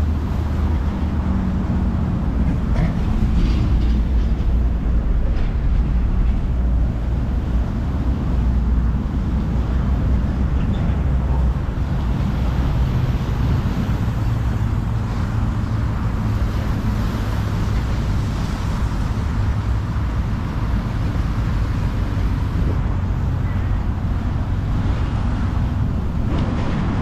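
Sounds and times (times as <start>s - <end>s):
outdoor low rumble: 0.0s - 27.0s.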